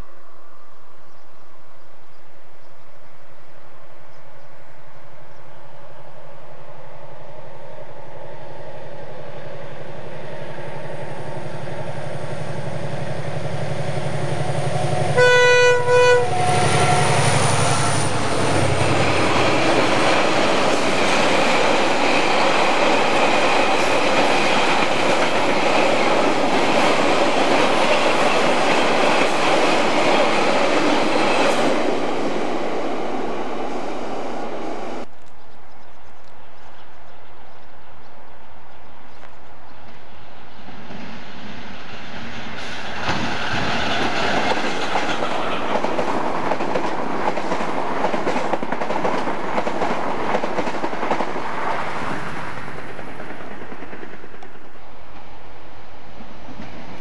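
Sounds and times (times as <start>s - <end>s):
diesel locomotive engine drone: 0.0s - 57.0s
train horn blasts: 14.2s - 18.6s.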